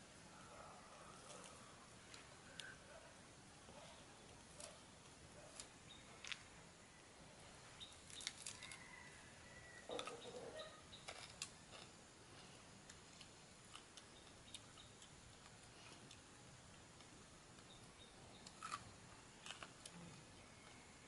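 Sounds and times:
crunchy chewing: 8.0 - 9.2, 9.9 - 20.9.

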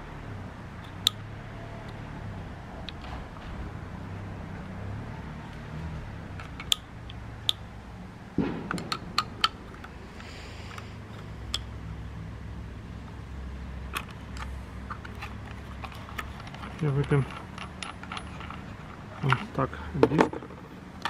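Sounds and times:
sharp clicks of tool handling: 6.3 - 7.6, 13.9 - 20.4
dull thump: 8.4 - 9.2.

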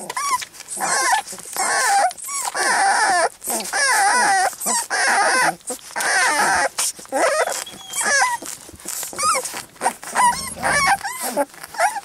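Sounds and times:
puppies squeaking and whimpering: 0.0 - 12.0.

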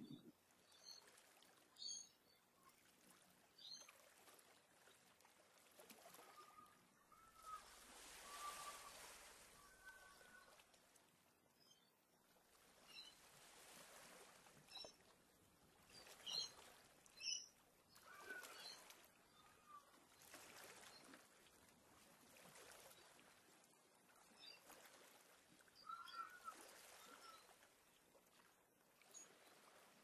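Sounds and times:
whistled bird notes: 6.4 - 10.3, 25.8 - 27.5.

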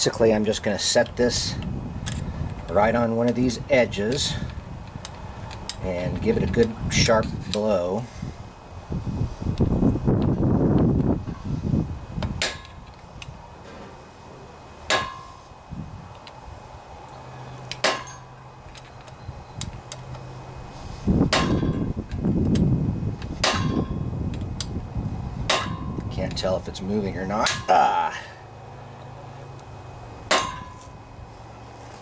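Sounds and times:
hammer striking steel tool: 30.3 - 31.0.

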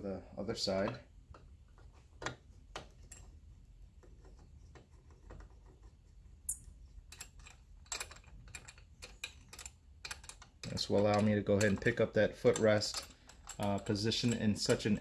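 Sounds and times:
metal hardware clicks: 6.5 - 15.0.

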